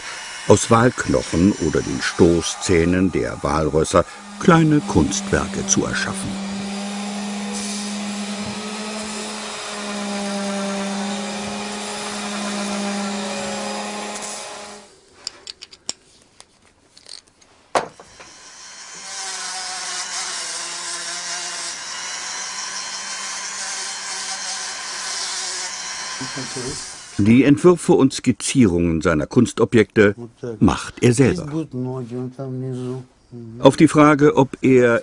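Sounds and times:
rotary tool grinding: 0.0s - 15.7s, 16.9s - 17.4s, 18.0s - 27.3s.

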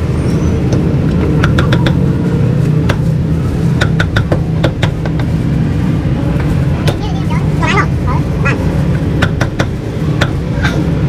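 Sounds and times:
low rumble of street noise: 0.0s - 11.0s.

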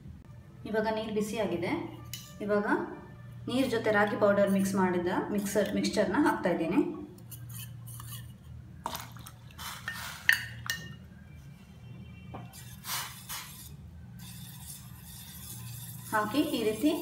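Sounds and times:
spoon stirring in pot: 7.2s - 11.0s.

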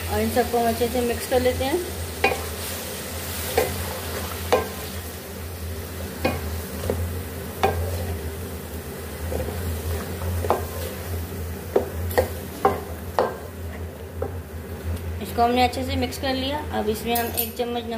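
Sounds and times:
food sizzling in hot oil: 0.0s - 15.6s.

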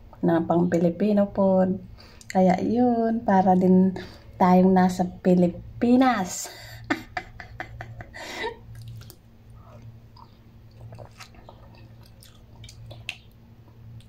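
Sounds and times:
steady low hum: 0.0s - 14.0s
breathy laugh: 6.6s - 8.7s
person chewing noodles: 8.6s - 14.0s.

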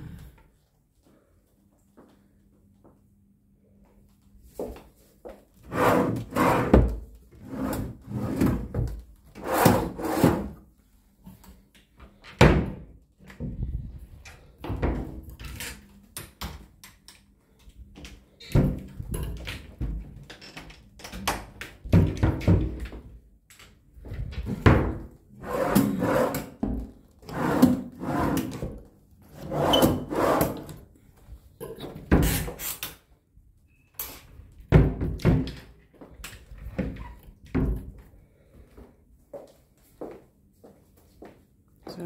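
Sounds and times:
drawers scraping slides: 5.7s - 6.8s, 9.4s - 10.6s, 25.4s - 26.5s, 27.3s - 28.6s, 29.3s - 30.7s.

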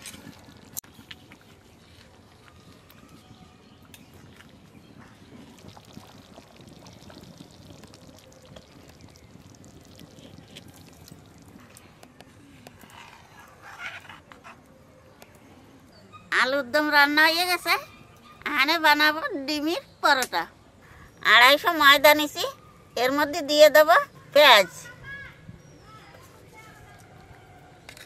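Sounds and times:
curry bubbling in a pan: 4.0s - 12.9s.

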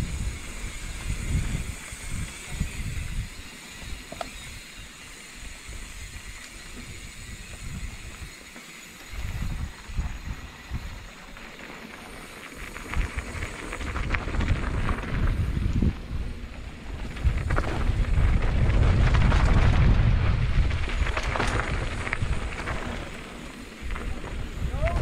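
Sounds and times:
wind buffeting microphone: 0.0s - 4.8s, 5.6s - 8.4s, 9.0s - 11.4s, 12.2s - 25.0s
steady hiss: 0.0s - 18.1s
crackling rustle: 0.0s - 25.0s.

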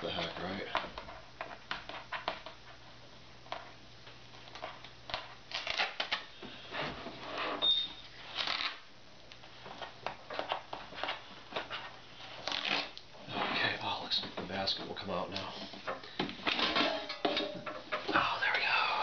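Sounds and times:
tape peeling off plastic: 4.5s - 6.3s, 8.2s - 8.9s, 12.3s - 13.1s
brief high squeak: 7.6s - 8.0s.

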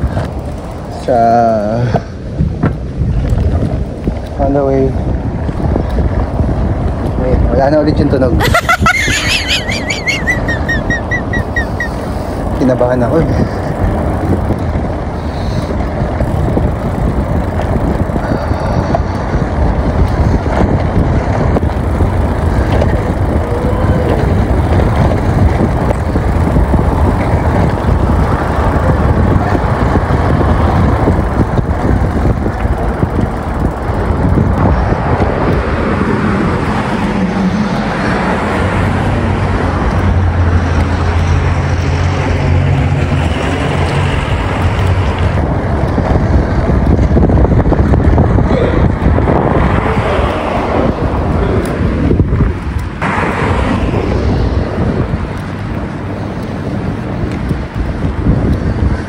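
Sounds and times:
bicycle rolling over brick paving: 0.0s - 1.1s, 12.4s - 35.9s
motor vehicle engine hum: 0.0s - 59.0s.

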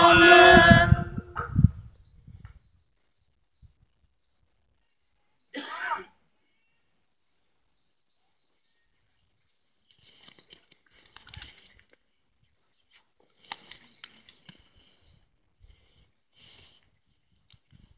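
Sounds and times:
faint bird chirps: 1.8s - 5.6s, 6.3s - 10.7s, 12.4s - 16.4s
person coughing: 5.5s - 6.2s.

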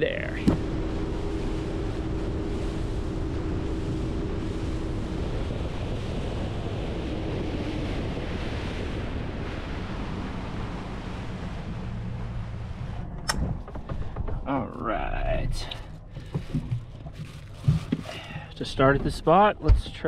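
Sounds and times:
boat engine tone: 0.0s - 20.0s
water rushing along hull: 0.0s - 20.0s
wind buffeting microphone: 0.0s - 20.0s
sharp click: 13.2s - 13.5s.

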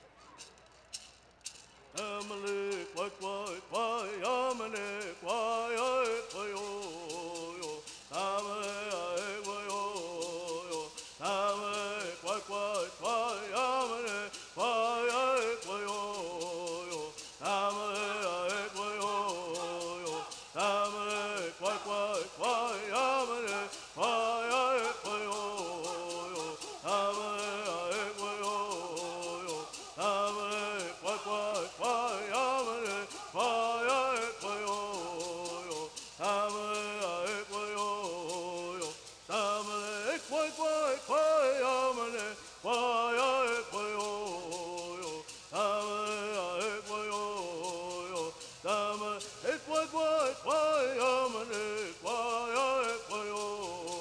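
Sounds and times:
gourd rattles shaken: 0.0s - 54.0s
group chanting in unison: 10.8s - 36.3s.

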